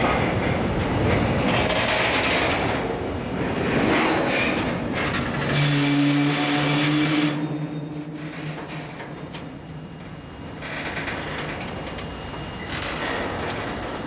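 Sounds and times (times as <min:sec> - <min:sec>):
train wheels rolling on rails: 0:00.0 - 0:14.0
train brake groan: 0:05.1 - 0:09.8.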